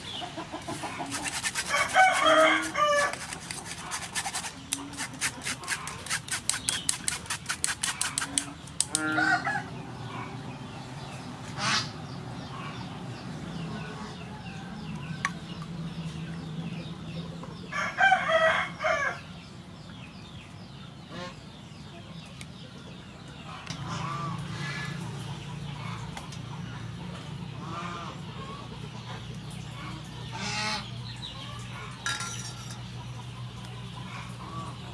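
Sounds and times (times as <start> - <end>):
chickens clucking: 0.0 - 10.4, 21.1 - 34.9
spoon scraping metal strainer: 1.0 - 8.5
rooster crowing: 1.7 - 3.2, 9.1 - 9.7.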